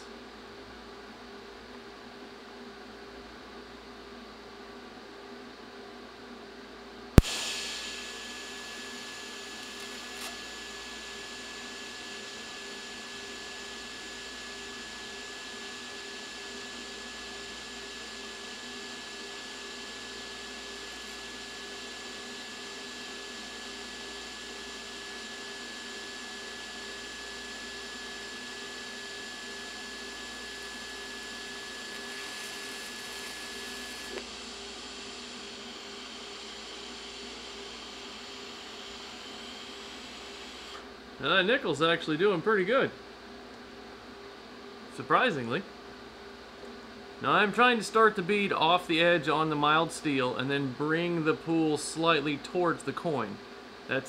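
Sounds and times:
welding arc striking crack: 0:07.2 - 0:10.4
welding arc hissing and whining: 0:07.2 - 0:42.0.

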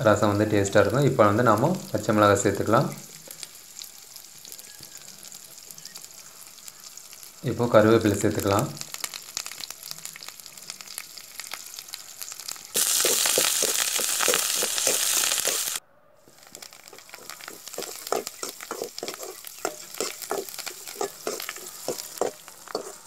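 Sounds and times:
food frying in hot oil: 0:00.0 - 0:23.0
loud sizzle: 0:00.0 - 0:23.0
metal spoon scraping a pan: 0:12.5 - 0:15.8, 0:16.4 - 0:23.0.

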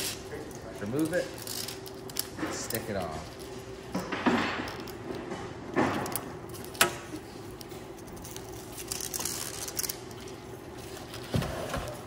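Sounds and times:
velcro strip rustling: 0:00.0 - 0:02.2, 0:08.0 - 0:10.3.

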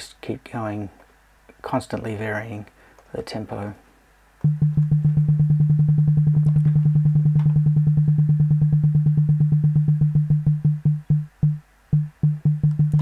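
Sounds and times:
synthesized percussive tone pulses: 0:04.4 - 0:13.0.

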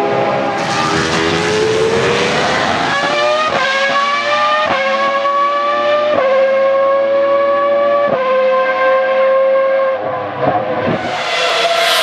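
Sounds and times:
race car engine screaming: 0:00.4 - 0:05.0, 0:10.7 - 0:12.0.

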